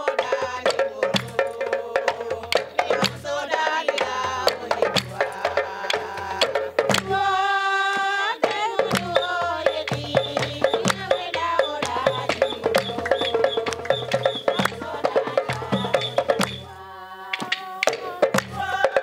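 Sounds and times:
fast hand drumming: 0.0s - 16.7s, 17.3s - 19.0s
women singing: 0.0s - 19.0s
hand claps: 5.9s - 7.1s, 8.0s - 14.8s.

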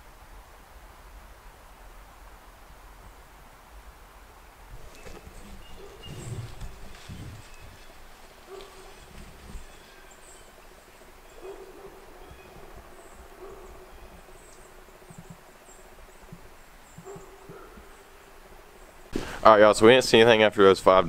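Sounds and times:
faint high bird chirps: 4.8s - 10.6s, 11.2s - 18.1s.

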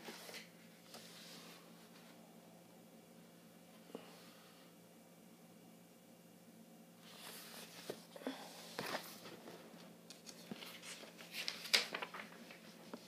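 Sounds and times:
book rustling: 7.0s - 13.0s.

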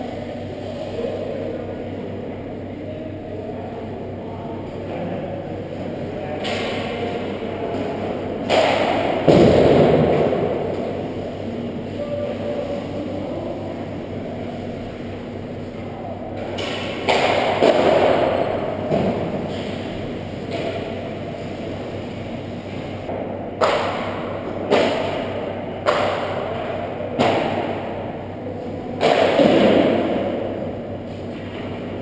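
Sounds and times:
hockey sticks striking pucks: 6.4s - 11.0s, 16.4s - 22.0s, 23.0s - 28.0s, 29.0s - 32.0s.

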